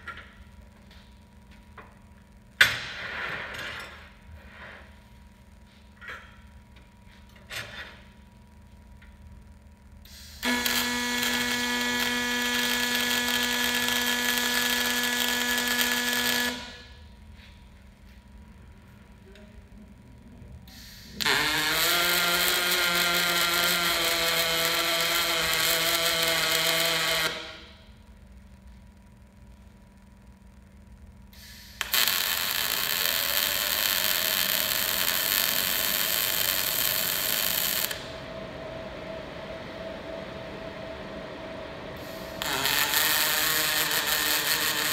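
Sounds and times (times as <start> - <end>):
welding arc buzzing: 7.3 - 17.4, 20.6 - 38.2, 42.0 - 44.9.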